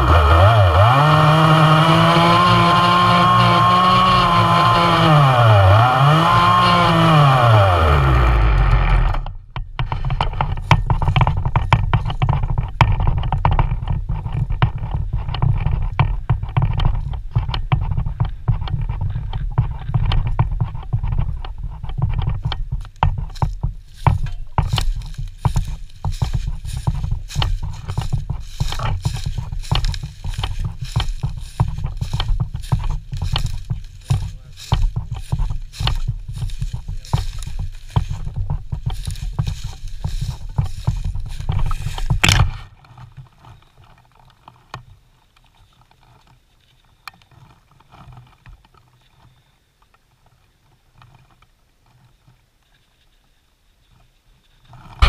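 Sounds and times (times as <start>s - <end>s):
chainsaw engine revving down: 0.0s - 11.4s, 24.6s - 42.7s
knocks of carried saw: 0.0s - 19.0s, 21.9s - 42.7s
footsteps through dry leaves: 23.3s - 42.7s.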